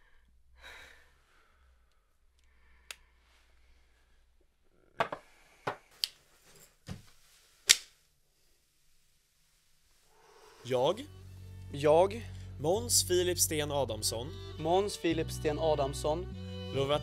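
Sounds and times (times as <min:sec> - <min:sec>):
low hum: 0:10.5 - 0:14.6.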